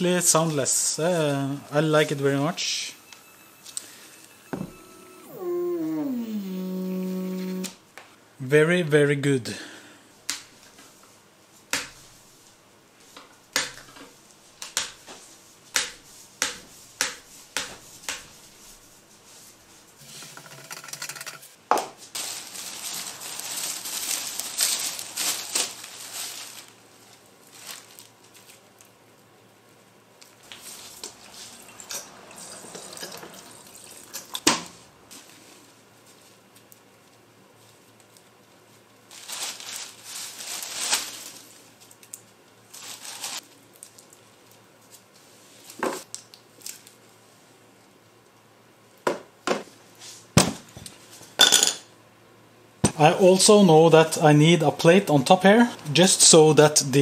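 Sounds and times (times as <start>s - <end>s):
rustling and scraping: 17.8s - 28.6s, 39.1s - 42.0s, 42.7s - 43.6s.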